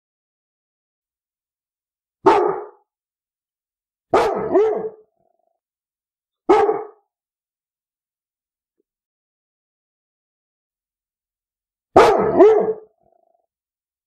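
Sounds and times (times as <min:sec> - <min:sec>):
dog barking: 0:02.2 - 0:02.8, 0:04.1 - 0:05.1, 0:06.4 - 0:07.1, 0:11.9 - 0:13.4.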